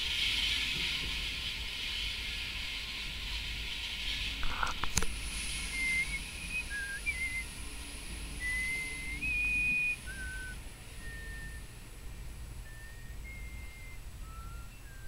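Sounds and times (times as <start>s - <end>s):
train cars rumbling past: 0.0s - 4.5s, 5.1s - 15.0s
high whistle-like tones: 5.4s - 11.8s, 12.6s - 15.0s.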